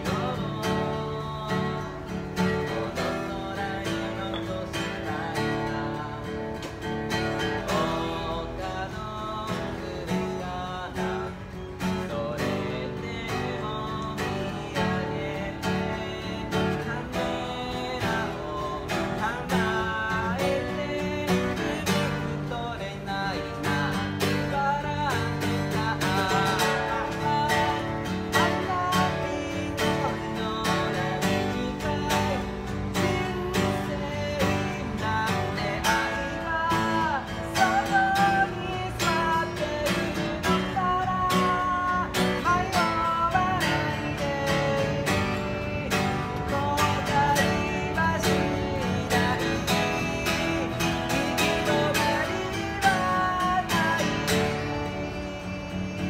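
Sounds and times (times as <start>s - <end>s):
acoustic guitar strumming: 0.0s - 56.0s
man singing: 0.0s - 56.0s.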